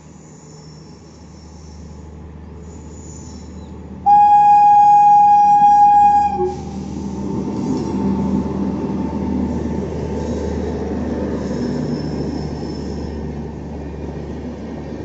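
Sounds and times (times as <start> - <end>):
locomotive rumble: 0.0 - 15.0
train horn blast: 4.0 - 6.9.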